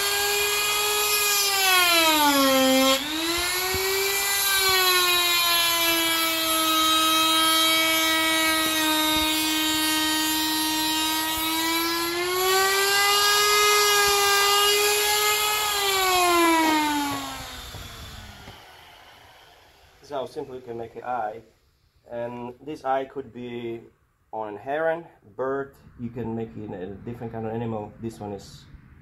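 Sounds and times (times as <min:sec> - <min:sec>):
die grinder cutting wood: 0:00.0 - 0:20.2.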